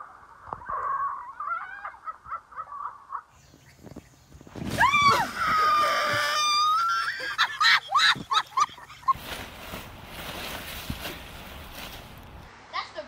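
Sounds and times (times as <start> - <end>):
human screaming and shrieking: 4.7 - 8.2.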